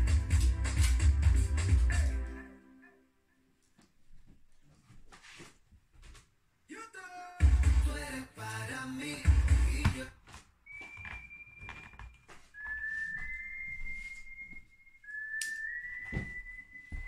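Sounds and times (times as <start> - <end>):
person whistling long notes: 10.6 - 17.0.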